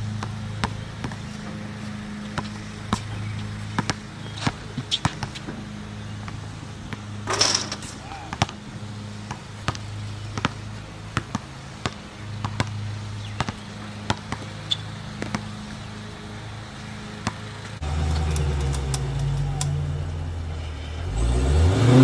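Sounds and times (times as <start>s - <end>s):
steady low hum: 0.0s - 21.2s
basketball bouncing on hard court: 0.1s - 15.9s, 17.2s - 17.7s
ball hitting hoop: 2.1s - 8.6s, 9.2s - 15.8s, 17.2s - 17.5s.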